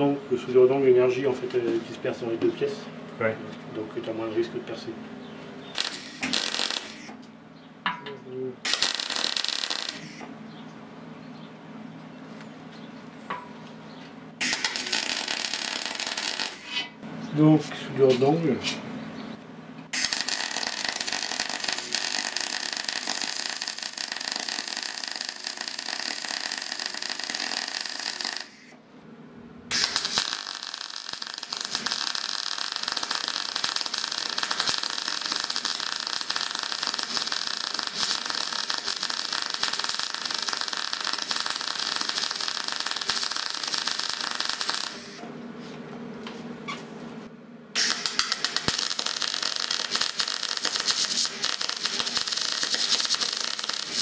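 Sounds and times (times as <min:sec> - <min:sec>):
welding arc crackling: 0:05.7 - 0:07.2, 0:08.6 - 0:10.3, 0:14.4 - 0:16.8, 0:19.9 - 0:28.8, 0:29.7 - 0:45.2, 0:47.8 - 0:54.0.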